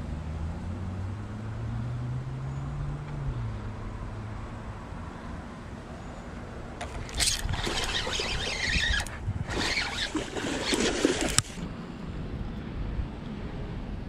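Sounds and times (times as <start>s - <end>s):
fish splashing at water surface: 6.8s - 11.6s.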